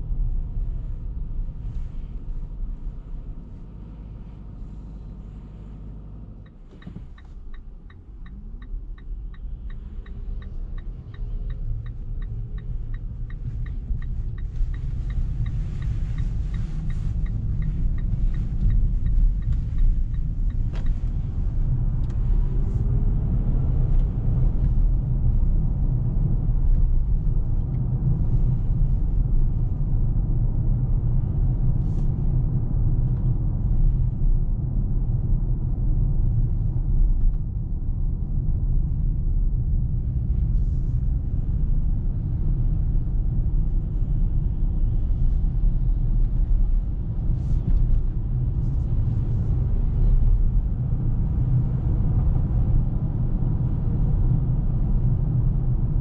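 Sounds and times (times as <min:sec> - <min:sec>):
road and tyre rumble: 0:00.0 - 0:56.0
turn signal ticking: 0:06.4 - 0:24.8.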